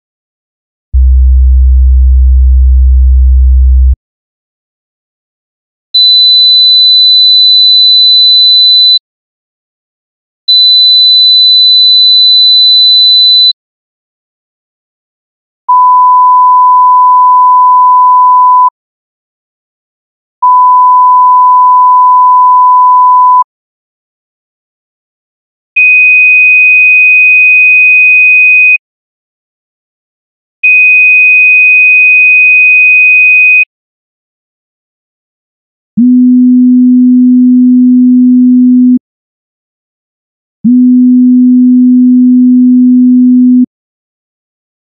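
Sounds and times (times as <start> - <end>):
sine-wave test tone: 36.0 - 39.0, 40.9 - 43.7.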